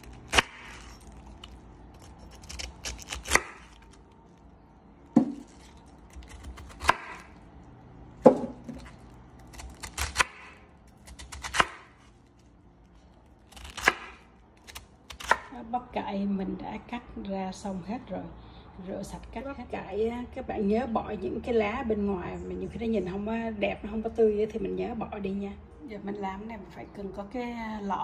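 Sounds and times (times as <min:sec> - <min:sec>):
knife slicing cabbage: 0:00.0 - 0:04.1, 0:05.2 - 0:07.4, 0:08.3 - 0:12.3, 0:13.4 - 0:15.6.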